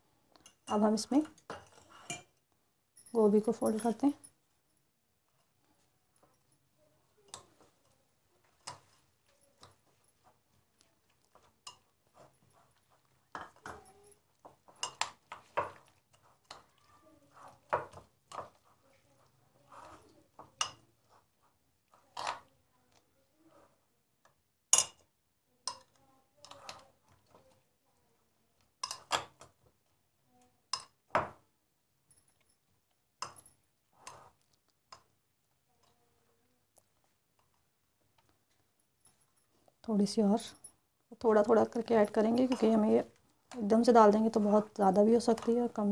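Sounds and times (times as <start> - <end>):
spoon scraping glass bowl: 1.4 - 2.3, 11.3 - 21.2, 33.2 - 34.5, 42.0 - 43.0.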